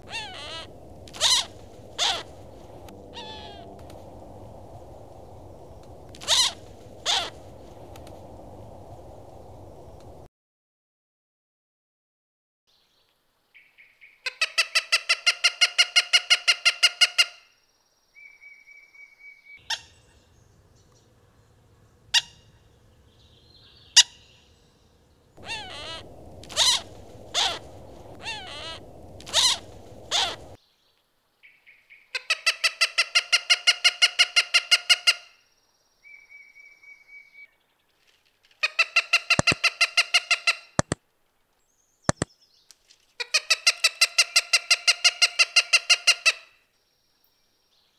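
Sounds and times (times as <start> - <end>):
hawk calling: 0.0 - 4.2, 5.0 - 8.0, 25.4 - 30.6, 38.6 - 40.9
background hiss: 0.0 - 10.3, 19.6 - 32.1.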